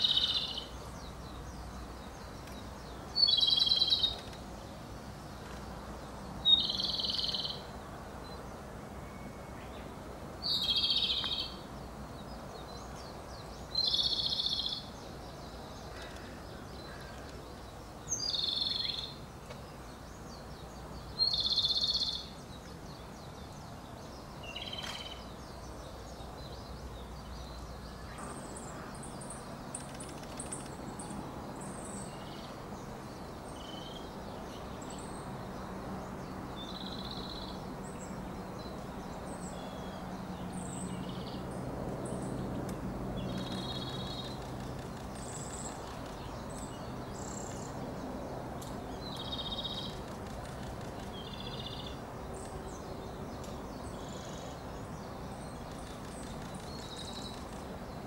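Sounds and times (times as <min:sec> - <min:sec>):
faint high bird chirps: 0:00.0 - 0:00.8, 0:02.2 - 0:04.4, 0:06.5 - 0:07.7, 0:09.0 - 0:11.6
robin singing: 0:00.0 - 0:58.0.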